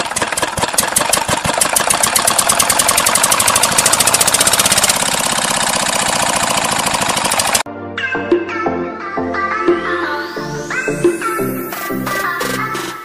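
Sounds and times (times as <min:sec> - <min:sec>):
stationary engine chugging: 0:00.0 - 0:07.7.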